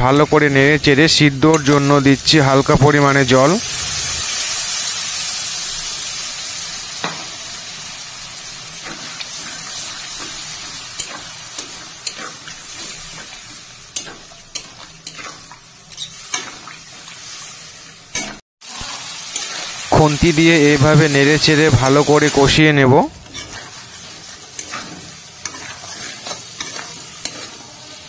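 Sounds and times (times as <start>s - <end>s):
chicken sizzling in hot oil: 0.0s - 28.0s
metal spatula scraping pan: 8.8s - 17.2s, 23.2s - 28.0s.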